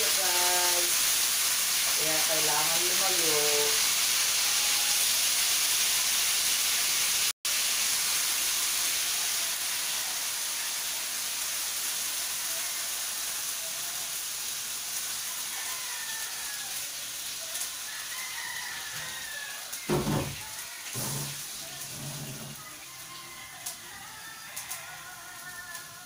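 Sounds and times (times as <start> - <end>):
meat sizzling in hot oil: 0.0 - 26.0.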